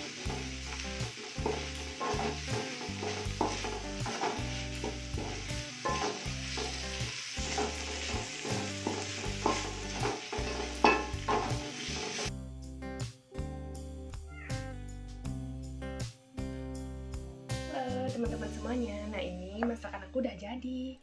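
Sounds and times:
green beans sizzling in a wok: 0:00.0 - 0:12.3
wooden spatula scraping a pan: 0:00.0 - 0:12.3.

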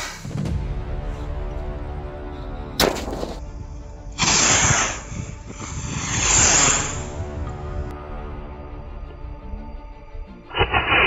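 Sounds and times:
background music: 0:00.0 - 0:11.0
firework rockets whooshing: 0:05.6 - 0:07.1.

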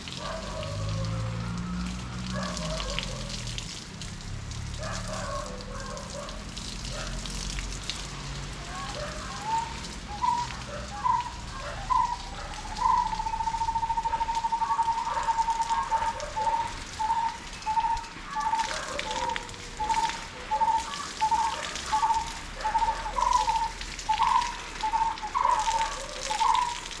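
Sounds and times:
water spraying from hose: 0:00.0 - 0:27.0
bird chirping: 0:09.4 - 0:26.8.

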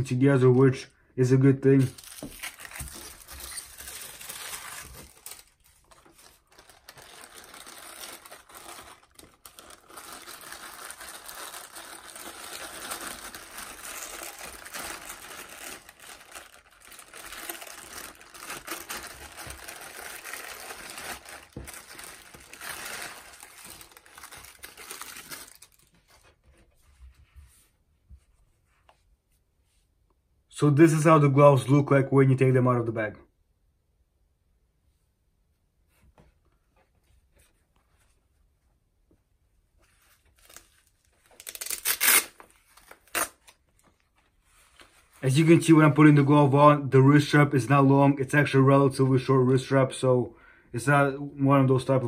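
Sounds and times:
plastic wrapper crinkling: 0:01.8 - 0:26.3, 0:40.0 - 0:45.4.

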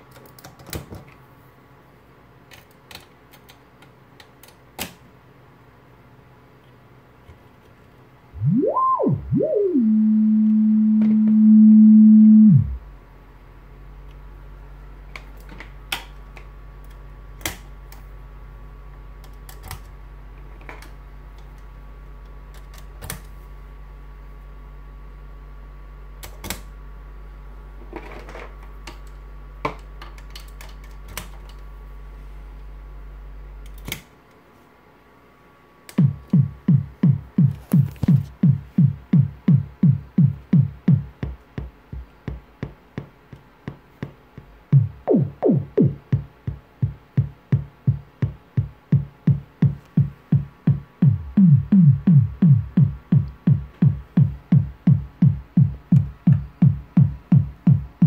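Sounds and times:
low hum: 0:08.3 - 0:13.0, 0:36.0 - 0:41.2, 0:44.6 - 0:58.0
synth kick drum thuds: 0:08.4 - 0:12.9, 0:36.0 - 0:42.8, 0:44.6 - 0:58.0.

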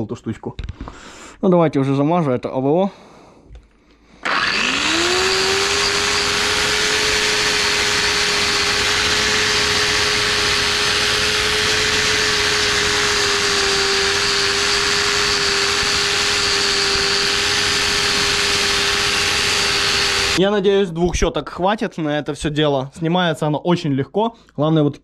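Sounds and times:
angle grinder motor whine: 0:04.2 - 0:20.4.

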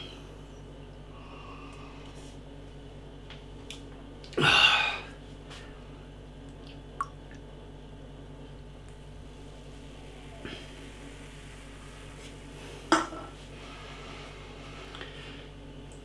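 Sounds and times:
man gasping: 0:04.4 - 0:05.2.

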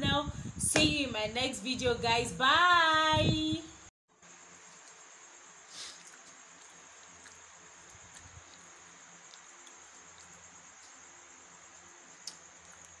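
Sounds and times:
hiss: 0:05.6 - 0:06.4.

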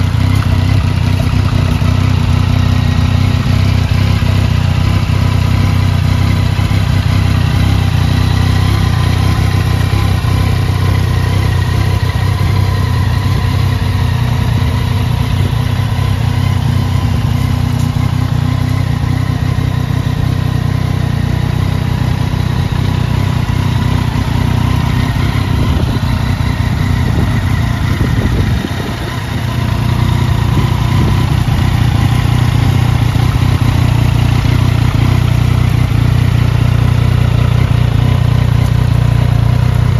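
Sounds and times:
motorcycle engine idling: 0:00.0 - 0:39.9.

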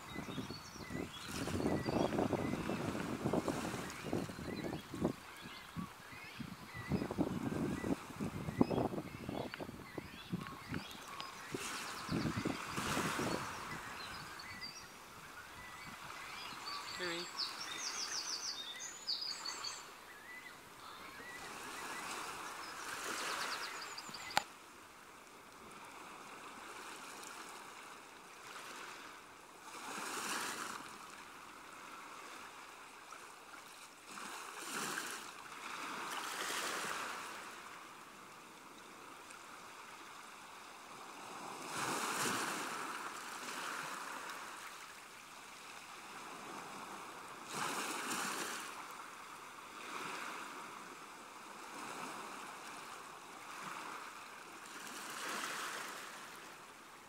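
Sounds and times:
sea water lapping: 0:25.6 - 0:56.6.

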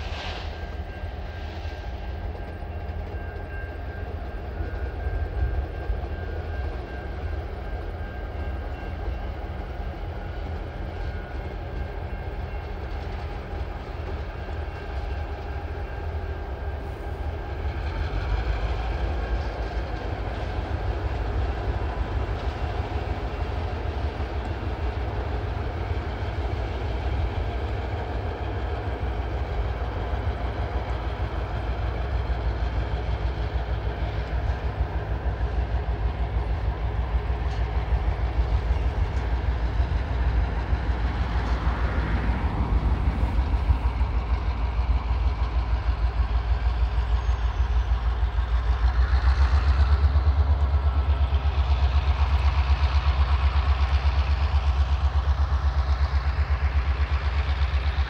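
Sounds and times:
diesel locomotive engines rumbling: 0:00.0 - 0:58.0.

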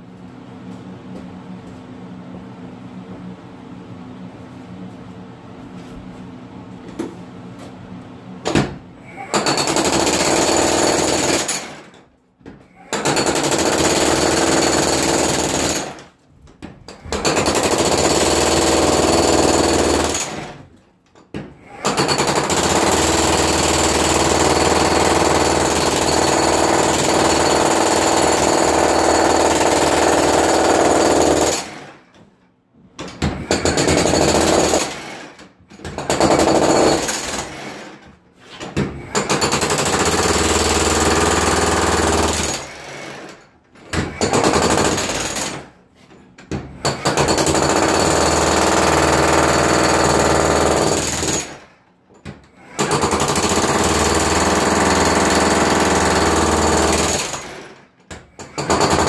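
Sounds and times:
jackhammer breaking concrete: 0:08.5 - 0:12.1, 0:12.7 - 0:16.1, 0:16.9 - 0:20.7, 0:21.4 - 0:32.1, 0:33.0 - 0:45.8, 0:46.4 - 0:59.0.

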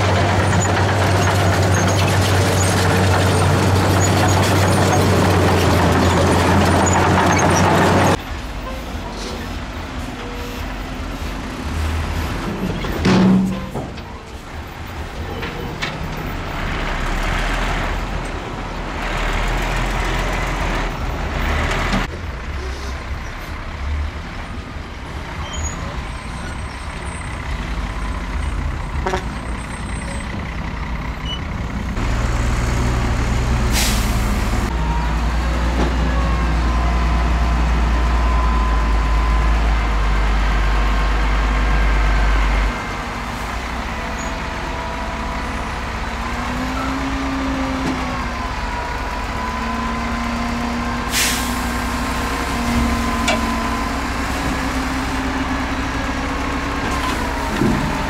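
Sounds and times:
diesel truck engines running: 0:00.0 - 0:58.0
air brake hiss: 0:33.7 - 0:34.4, 0:51.1 - 0:51.9.

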